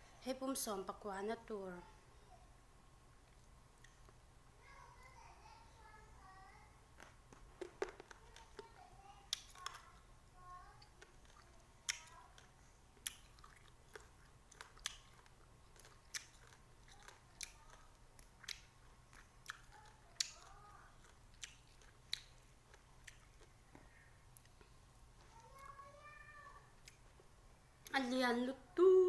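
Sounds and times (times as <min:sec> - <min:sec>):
crunchy chewing clicks: 0:03.3 - 0:04.2, 0:07.0 - 0:10.1, 0:10.8 - 0:23.6, 0:26.8 - 0:27.2.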